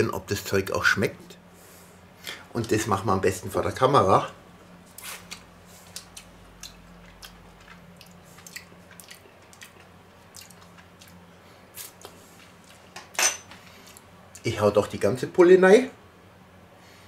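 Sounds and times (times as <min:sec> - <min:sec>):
lip smacks and mouth clicks: 0:05.0 - 0:11.2.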